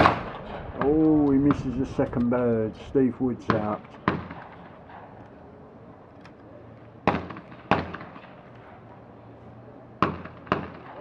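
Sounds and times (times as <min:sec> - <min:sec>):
shotgun shots: 0:00.0 - 0:01.9, 0:03.4 - 0:05.2, 0:07.0 - 0:08.4, 0:10.0 - 0:11.0.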